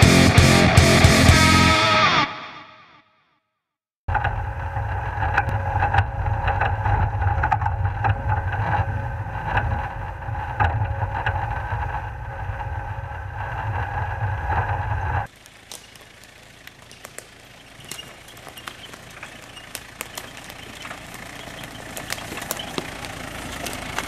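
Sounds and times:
engine rumble: 0:00.0 - 0:02.2, 0:04.1 - 0:24.0
vehicle knocks and rattles: 0:15.2 - 0:24.0.

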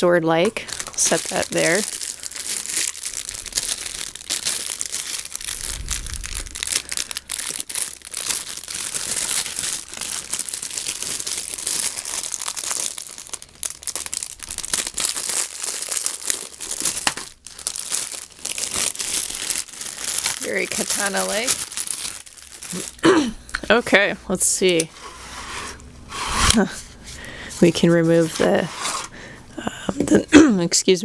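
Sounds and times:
plastic wrapping crinkling and tearing: 0:00.5 - 0:23.6.

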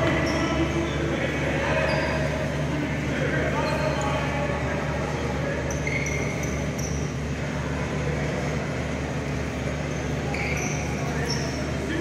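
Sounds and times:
short high squeaks: 0:00.0 - 0:01.1, 0:01.7 - 0:02.5, 0:05.5 - 0:07.4, 0:09.8 - 0:11.8
faint murmur of voices: 0:00.0 - 0:12.0
steady low hum: 0:00.0 - 0:12.0.

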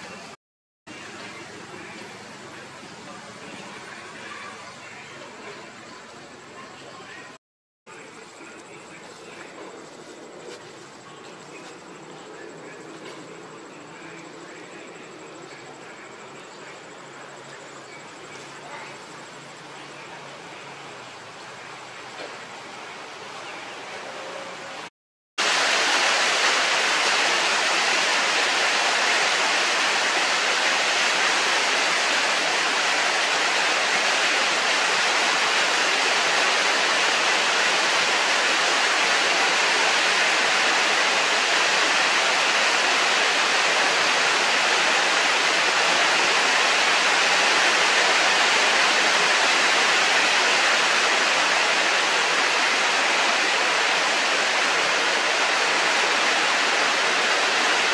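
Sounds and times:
steady rushing noise: 0:25.4 - 0:57.9.

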